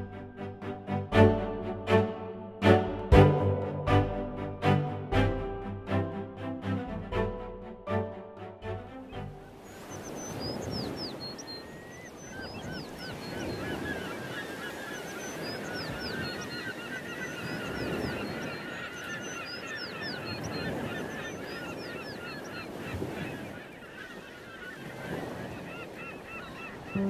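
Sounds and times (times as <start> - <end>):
flock of birds calling: 9.0 - 27.0.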